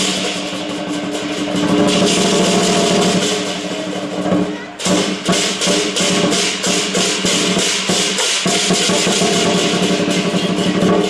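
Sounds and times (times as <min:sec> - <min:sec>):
drum and cymbals crashing: 0:00.0 - 0:11.0.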